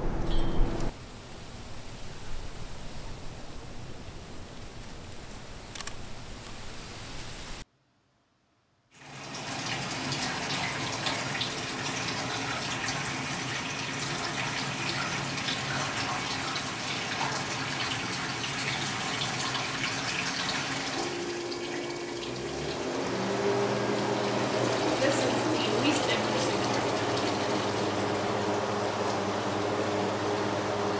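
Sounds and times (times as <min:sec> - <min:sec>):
liquid pouring into a tank: 0:09.0 - 0:30.9.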